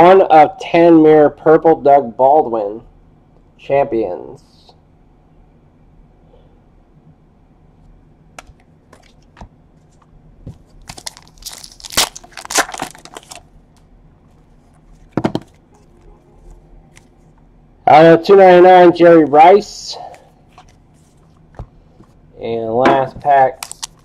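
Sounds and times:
card pack wrapper crinkling: 10.8 - 13.8, 23.5 - 24.0.

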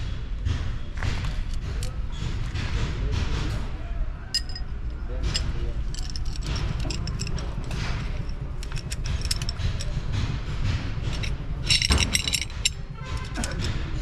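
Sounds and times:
metal tools clinking and scraping: 1.4 - 1.9, 4.3 - 14.0
low rumble: 3.1 - 14.0
ringing metal clatter: 4.3 - 14.0.

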